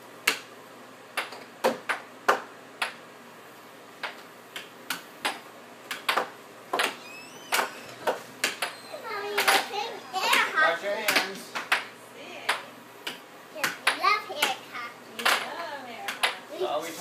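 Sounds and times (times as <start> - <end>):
air hockey puck clacking: 0.2 - 0.5, 1.1 - 3.0, 4.0 - 11.9, 12.5 - 14.6, 15.2 - 16.4.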